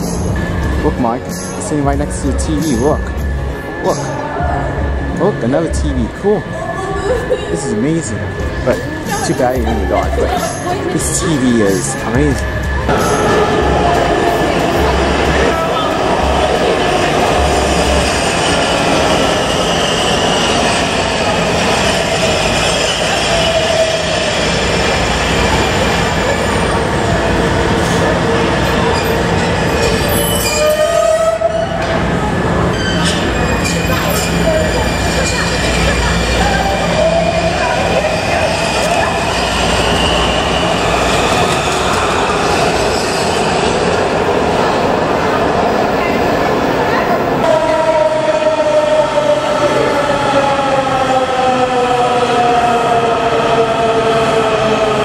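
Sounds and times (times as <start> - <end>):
train wheels rolling on rails: 8.1 - 55.0
high-pitched wheel squealing: 28.8 - 31.9, 32.6 - 43.5.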